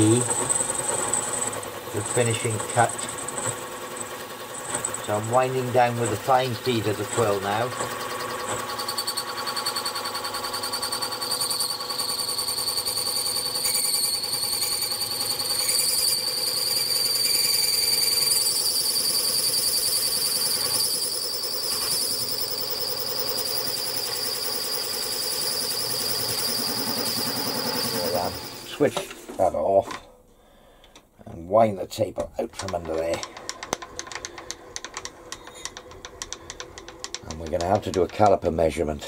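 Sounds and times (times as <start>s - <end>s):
milling spindle high-pitched whine: 0.0s - 29.1s, 32.6s - 39.0s
machine hum: 9.9s - 31.0s.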